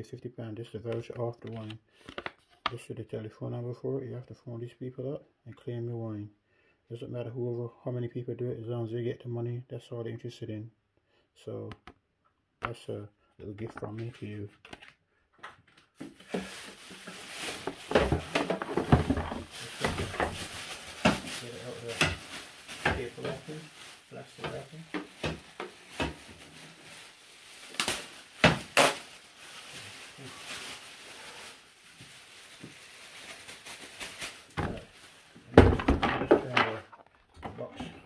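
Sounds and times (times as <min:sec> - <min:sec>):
packaging rustling and knocking: 0:14.6 - 0:29.8, 0:31.9 - 0:37.7.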